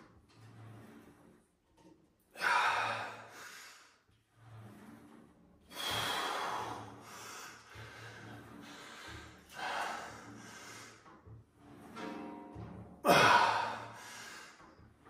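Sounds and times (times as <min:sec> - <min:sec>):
man breathing heavily: 0:05.7 - 0:11.1.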